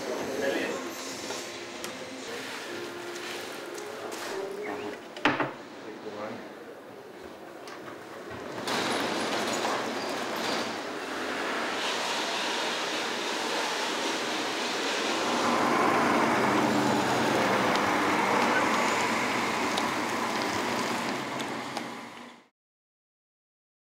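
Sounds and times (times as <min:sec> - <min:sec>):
lorry driving past: 0:14.0 - 0:22.4.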